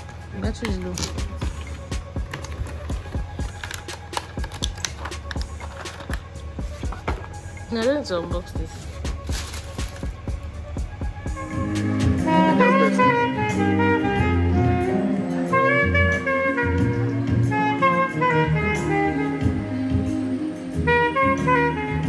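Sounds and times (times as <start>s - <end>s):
low musical accompaniment: 0.0s - 22.0s
alto saxophone jazzy melody: 8.3s - 22.0s.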